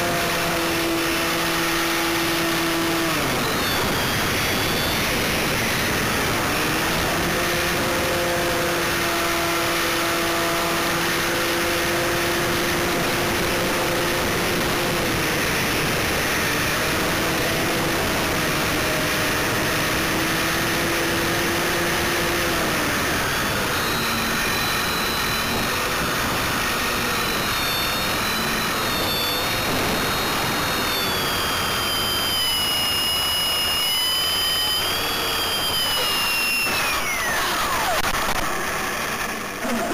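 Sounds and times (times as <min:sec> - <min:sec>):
electric motor and propeller drone: 0:00.0 - 0:39.9
high whine: 0:00.0 - 0:39.9
wind rush on microphone: 0:25.1 - 0:31.6.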